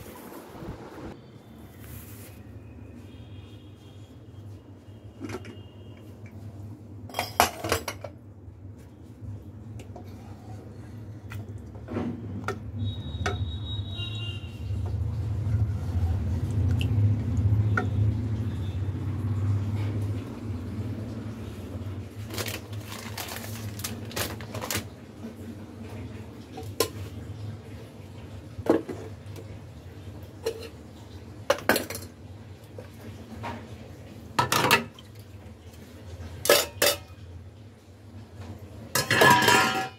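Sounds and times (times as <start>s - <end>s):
pots and utensils clanking: 7.1s - 8.2s, 26.5s - 27.2s, 28.6s - 29.5s, 30.2s - 32.2s, 32.9s - 35.1s, 36.1s - 37.4s, 38.3s - 39.9s.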